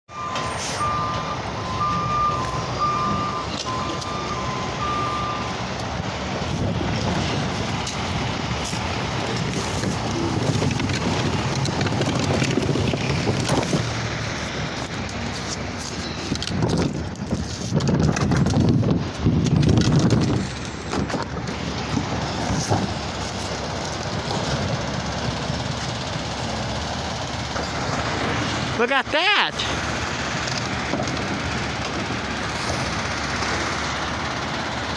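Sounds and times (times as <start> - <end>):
truck warning alarm beeping: 0.1 - 17.0
truck engine rumble: 0.1 - 34.9
wind buffeting microphone: 5.9 - 25.2.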